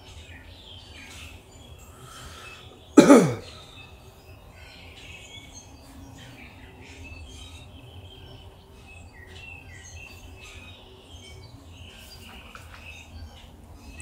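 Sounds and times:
birds chirping: 0.0s - 14.0s
man coughing: 3.0s - 3.5s.

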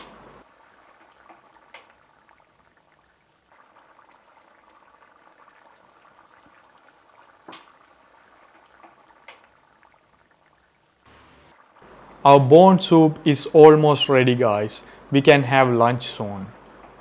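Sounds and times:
soup bubbling at the boil: 0.2s - 12.2s, 16.5s - 17.0s.

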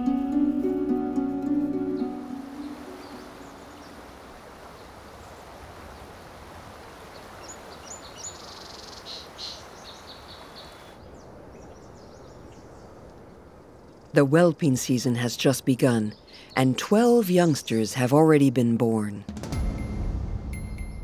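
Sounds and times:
small birds chirping: 1.9s - 6.1s, 7.1s - 14.2s, 14.8s - 18.0s
creek rushing over cascade: 2.1s - 10.8s.

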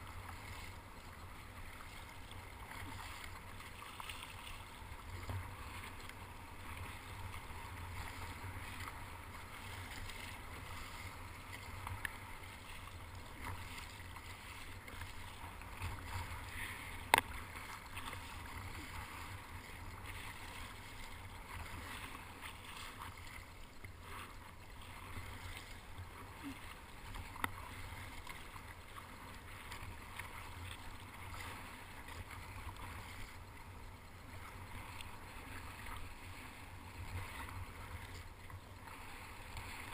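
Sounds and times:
paddle strokes splashing: 0.0s - 39.9s
water sloshing along plastic hull: 0.0s - 39.9s.

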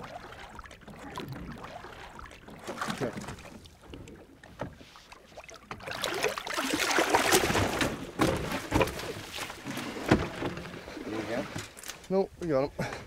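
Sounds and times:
fish thrashing and splashing: 0.0s - 4.2s, 5.2s - 10.4s
sharp knocks on boat: 7.4s - 9.2s.

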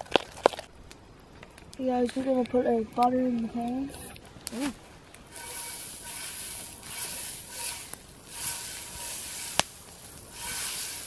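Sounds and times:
butter sizzling in a hot pan: 5.2s - 11.0s.

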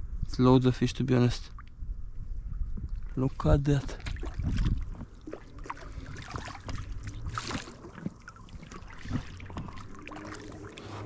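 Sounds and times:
water lapping against boat hull: 2.6s - 11.0s.

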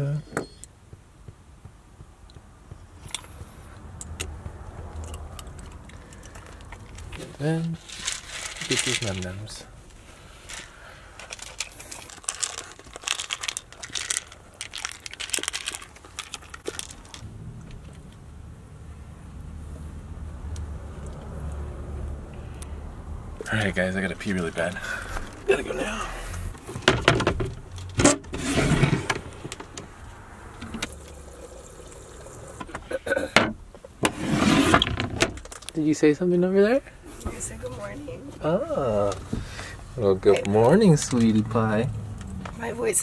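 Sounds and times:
pet crunching dry kibble: 4.8s - 17.8s.

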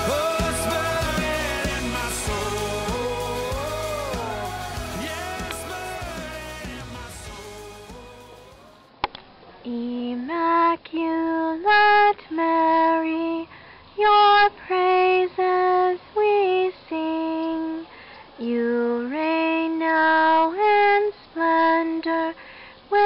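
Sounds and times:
woman singing unaccompanied: 9.6s - 23.0s.

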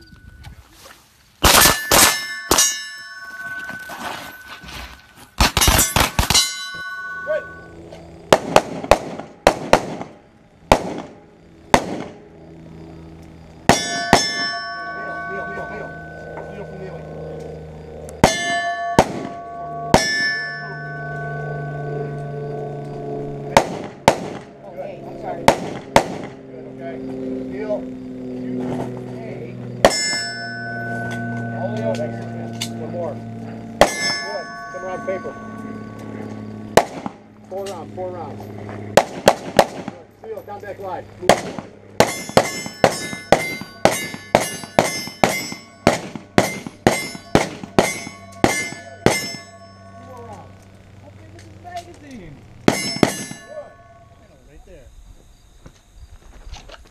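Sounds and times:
pistol shots: 1.4s - 2.8s, 5.4s - 6.6s, 8.3s - 12.2s, 18.2s - 20.2s, 23.5s - 24.6s, 25.4s - 26.4s, 36.7s - 37.2s, 39.0s - 40.0s, 41.2s - 49.4s, 52.6s - 53.5s
steel target ringing: 1.4s - 4.8s, 5.4s - 8.5s, 13.6s - 26.5s, 29.8s - 38.6s, 42.0s - 50.8s, 52.6s - 54.8s.

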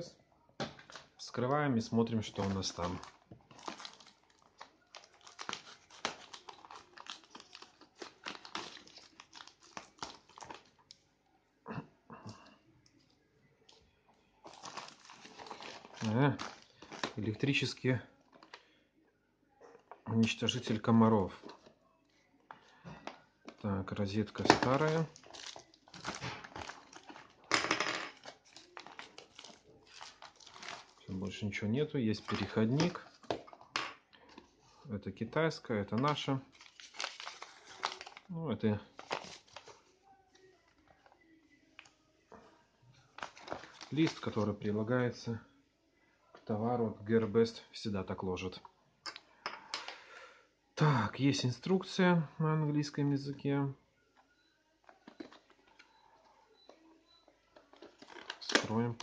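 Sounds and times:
plastic bag crinkling: 2.1s - 10.8s, 14.4s - 17.4s, 24.3s - 31.4s, 36.1s - 38.3s, 43.2s - 44.4s, 57.6s - 59.0s.

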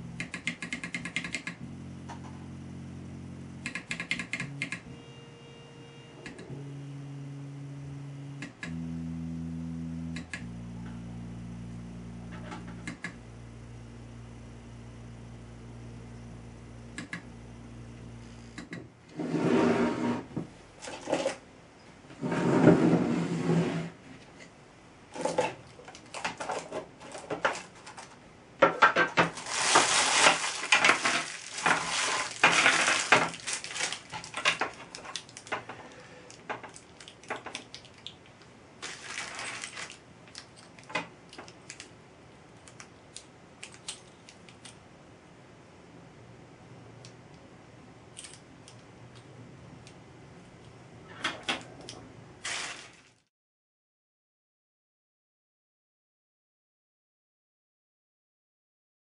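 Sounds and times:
stepper motor whirring: 0.0s - 18.7s
clicks: 3.6s - 5.0s, 6.2s - 6.6s, 8.4s - 8.8s, 10.1s - 11.0s, 12.2s - 13.2s, 16.9s - 17.3s
plastic bags crinkling and rattling: 25.7s - 28.2s, 28.9s - 38.2s, 38.8s - 41.9s, 52.4s - 53.3s.

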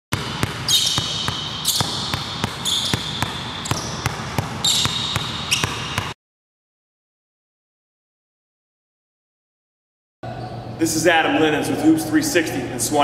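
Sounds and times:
basketball bouncing on hard floor: 0.1s - 6.2s
high shoe squeal: 0.2s - 6.2s.

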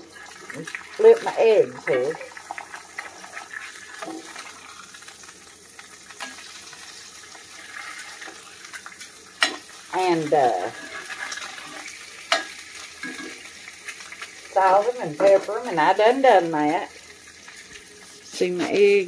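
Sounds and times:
eggs sizzling in a pan: 0.0s - 19.0s
spatula scraping and tapping pan: 2.4s - 4.5s, 6.1s - 6.6s, 7.8s - 9.8s, 10.6s - 14.3s.

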